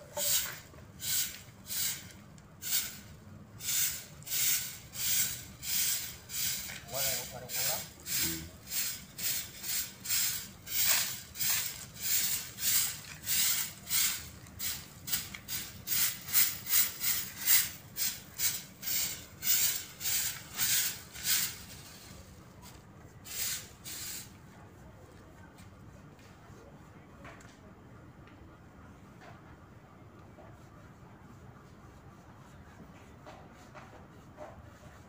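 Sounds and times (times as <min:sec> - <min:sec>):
broom sweeping pavement: 0:00.0 - 0:24.9.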